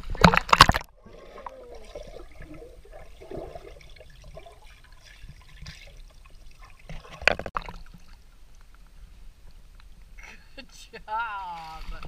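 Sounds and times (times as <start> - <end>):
pool water splashing: 0.0 - 8.6.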